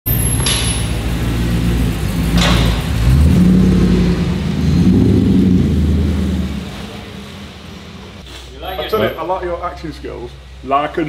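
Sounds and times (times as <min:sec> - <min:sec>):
engine revving: 0:00.4 - 0:08.2.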